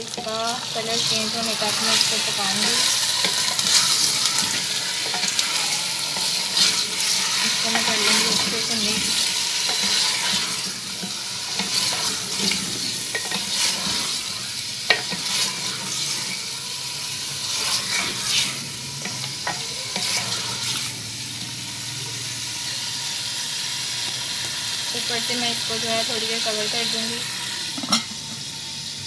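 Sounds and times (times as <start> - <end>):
chicken sizzling in oil: 0.0 - 29.0
wooden spoon scraping clay pot: 1.9 - 14.2.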